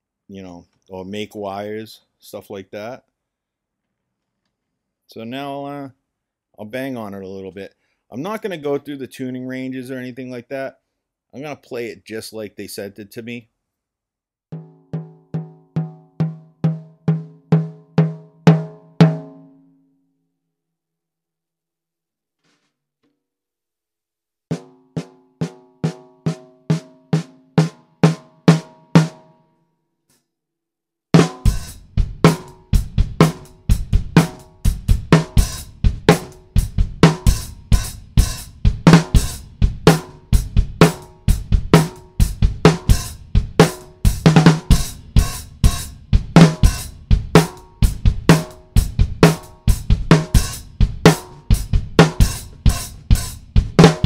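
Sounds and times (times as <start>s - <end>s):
snare drum strikes: 31.2s - 31.6s, 53.8s - 54.0s
drum kit groove: 31.2s - 54.0s.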